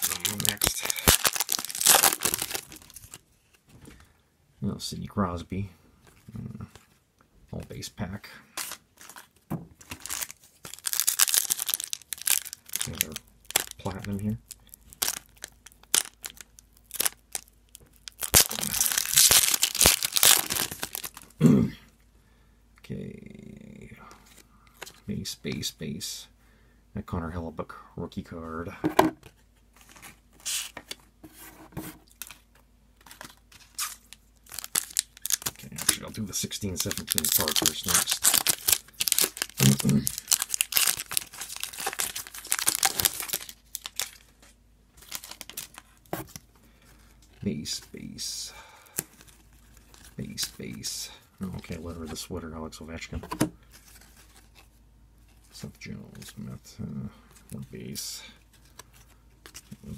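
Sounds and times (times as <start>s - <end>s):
foil wrapper tearing: 0.0s - 3.1s, 10.0s - 21.2s, 33.7s - 44.3s
foil wrapper crinkling: 0.0s - 3.2s, 9.8s - 21.3s, 33.0s - 44.4s, 45.0s - 46.4s.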